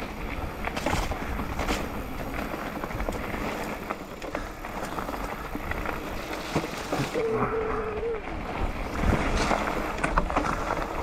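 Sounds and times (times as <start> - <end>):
bike rattling and clicking: 0.0 - 11.0
tyres crunching over dirt and stones: 0.0 - 11.0
wind noise on microphone: 7.0 - 11.0.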